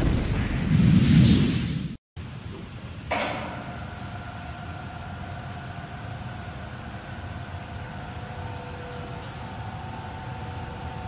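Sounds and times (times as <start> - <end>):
roll machine humming and whining: 3.2 - 11.0.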